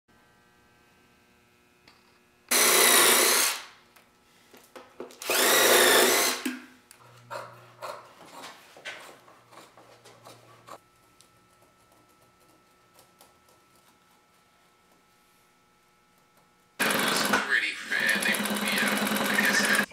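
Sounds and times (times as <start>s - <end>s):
power drill whine: 2.5s - 3.8s, 5.2s - 6.5s, 16.8s - 19.9s.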